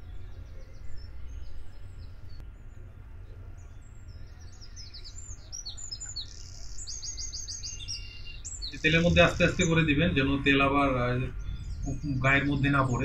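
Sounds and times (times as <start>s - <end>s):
small birds chirping: 0.0s - 13.0s
steady low rumble: 8.5s - 13.0s.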